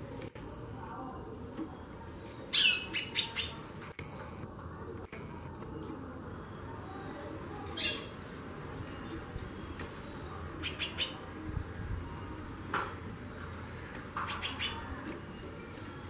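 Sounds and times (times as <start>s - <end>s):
bird chipping calls: 2.5s - 3.7s, 10.6s - 11.3s, 14.0s - 15.0s.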